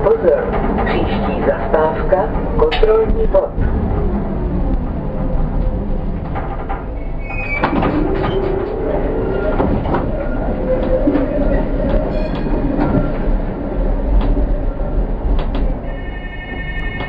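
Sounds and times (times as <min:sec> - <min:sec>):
tram rolling rumble: 0:00.0 - 0:17.0
tram wheels squealing: 0:00.6 - 0:03.0, 0:06.7 - 0:13.3, 0:15.7 - 0:17.0.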